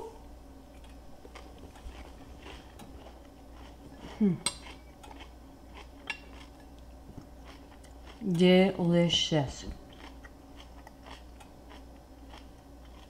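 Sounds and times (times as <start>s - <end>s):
person humming: 4.1s - 4.5s.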